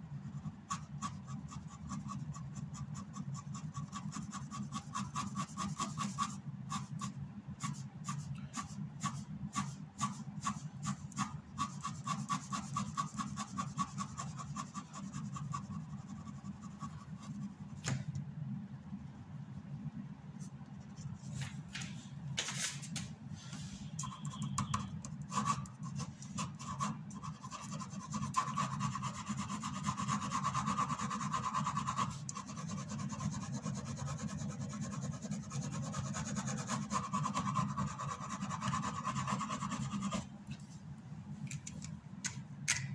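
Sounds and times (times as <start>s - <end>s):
pen scratching on paper: 0.4s - 17.8s, 24.0s - 40.3s.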